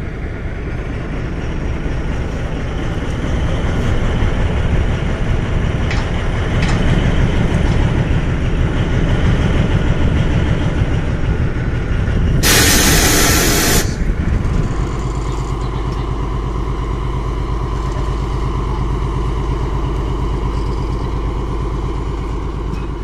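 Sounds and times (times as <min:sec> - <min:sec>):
locomotive engine running: 0:00.0 - 0:23.0
loud hissing rush: 0:12.4 - 0:14.4.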